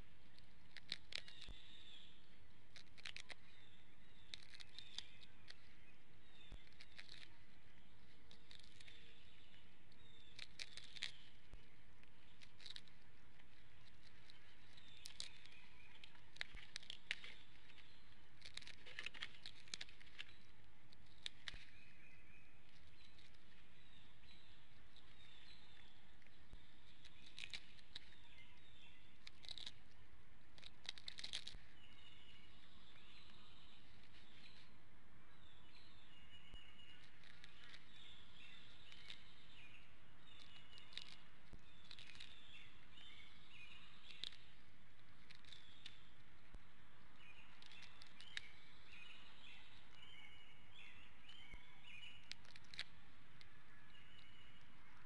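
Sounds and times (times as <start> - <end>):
small birds chirping: 0.0 - 55.0
steady outdoor hiss: 0.0 - 55.0
eagle tearing at fish: 2.7 - 3.6, 10.0 - 11.3, 12.3 - 20.4, 26.6 - 29.8.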